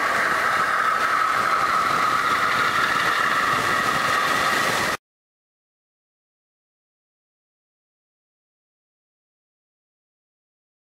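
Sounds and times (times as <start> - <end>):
model train whining and rattling: 0.0 - 5.0.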